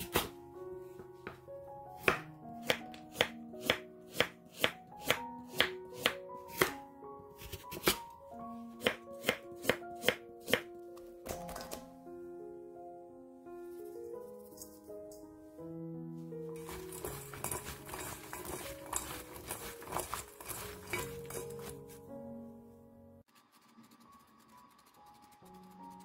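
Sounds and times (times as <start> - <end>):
background music: 0.0 - 26.0
knife slicing on wooden board: 16.6 - 22.0.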